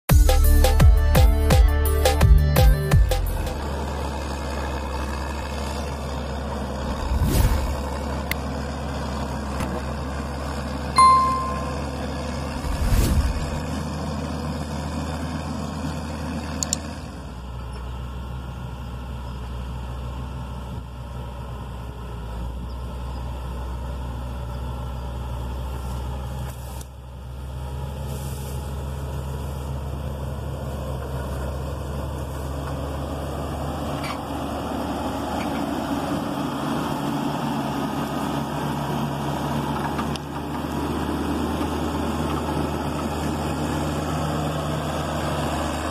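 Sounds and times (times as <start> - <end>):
diesel engine running: 0.1 - 45.9
blade cutting into earth: 6.8 - 8.0.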